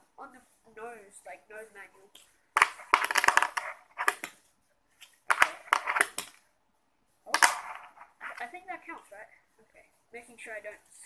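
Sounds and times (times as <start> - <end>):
fingerboard wheels rolling on concrete: 2.6 - 4.3.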